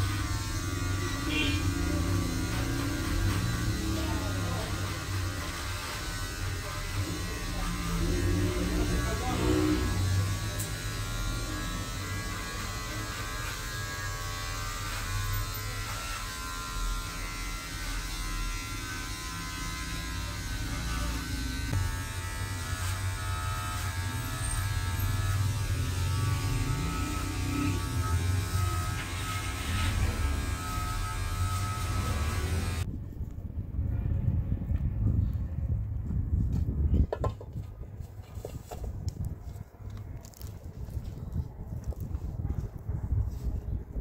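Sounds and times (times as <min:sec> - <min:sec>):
electric hair clippers buzzing: 0:00.0 - 0:32.9.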